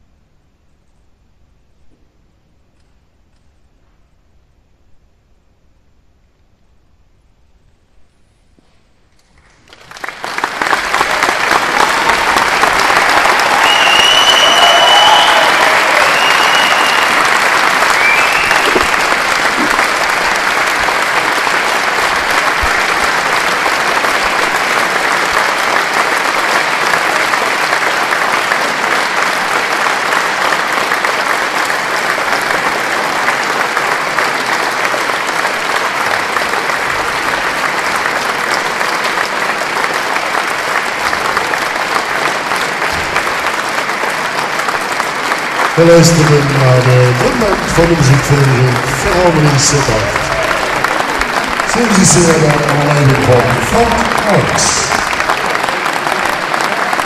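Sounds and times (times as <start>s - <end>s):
audience applauding: 9.2s - 57.0s
whistles from audience: 13.2s - 19.2s.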